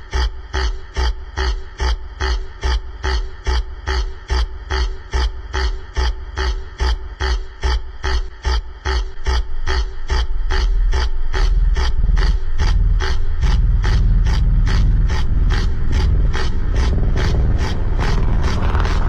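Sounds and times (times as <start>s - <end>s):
heavy bass: 0.0s - 19.0s.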